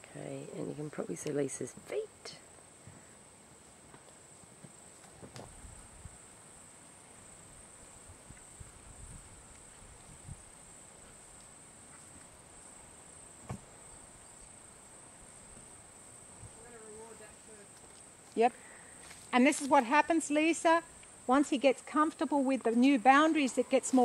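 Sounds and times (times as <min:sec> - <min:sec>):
insects droning: 0:00.0 - 0:24.0
wind rumble on microphone: 0:08.0 - 0:10.6.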